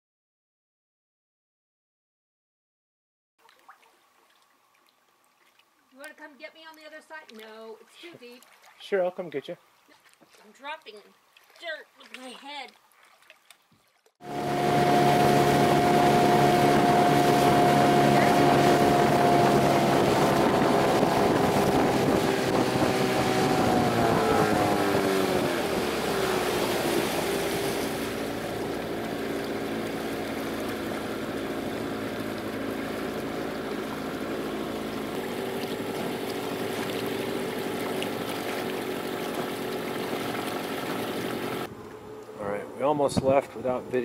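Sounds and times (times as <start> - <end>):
outboard motor running: 14.2 - 44.0
wind and water rushing: 14.2 - 44.0.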